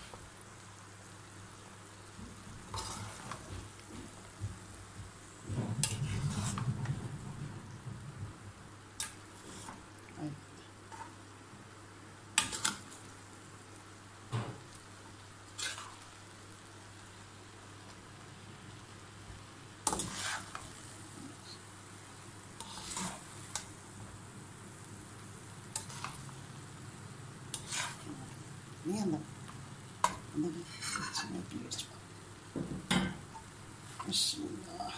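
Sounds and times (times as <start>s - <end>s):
metal spoon scraping a pan: 2.7s - 3.4s, 5.8s - 6.7s, 9.0s - 9.8s, 12.4s - 13.0s, 15.5s - 16.1s, 19.8s - 20.8s, 22.6s - 23.8s, 25.7s - 26.3s, 27.5s - 28.3s, 30.0s - 31.5s.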